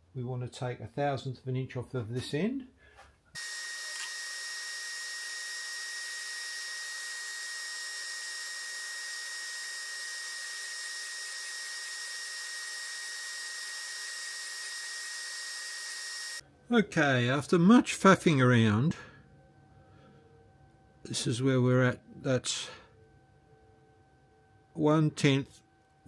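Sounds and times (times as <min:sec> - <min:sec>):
surface grinder hiss and whine: 0:03.4 - 0:16.4.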